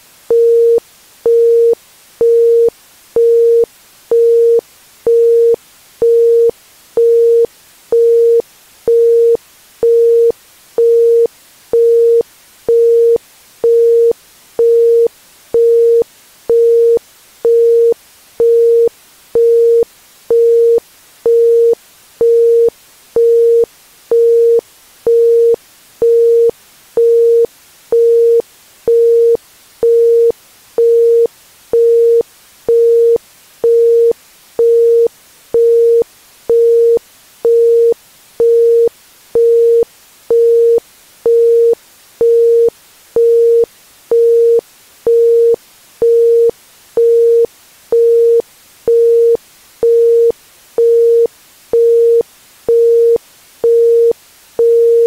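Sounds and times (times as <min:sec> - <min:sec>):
faint background hiss: 0:00.0 - 0:55.0.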